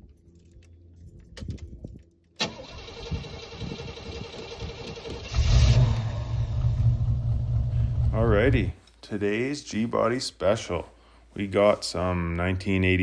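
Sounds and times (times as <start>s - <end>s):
car starter motor cranking: 2.4s - 8.0s
car engine idling: 2.5s - 8.7s.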